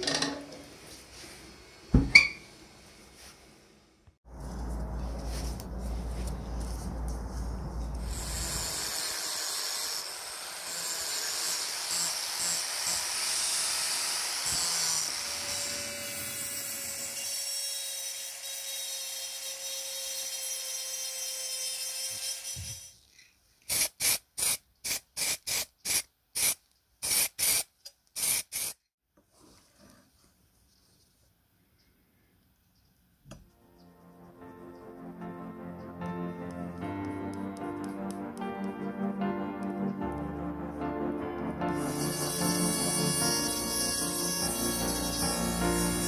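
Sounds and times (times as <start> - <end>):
rotary tool grinding metal: 8.0 - 23.2, 41.8 - 46.0
short hissing bursts: 23.7 - 28.9.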